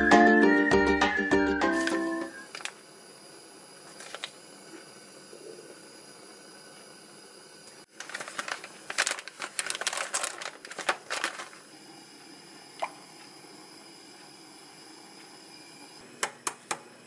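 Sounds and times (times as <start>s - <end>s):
plastic packet crinkling: 7.9s - 11.6s.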